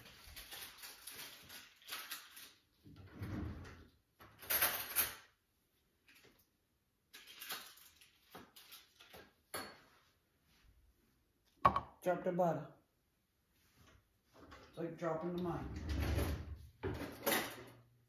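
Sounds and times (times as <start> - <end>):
kitchen knocks and scrapes: 16.3 - 17.8.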